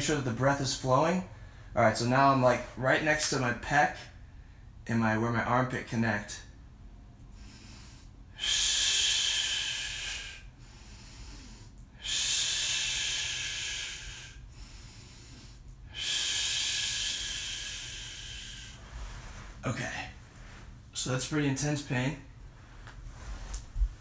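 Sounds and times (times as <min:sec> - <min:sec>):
man breathing out forcefully: 0:07.3 - 0:19.6.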